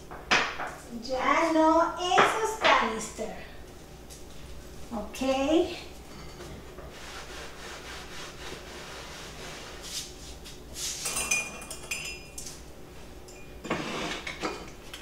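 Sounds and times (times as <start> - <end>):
cups and glassware clinking: 6.1 - 6.6, 11.0 - 12.6, 13.3 - 14.8.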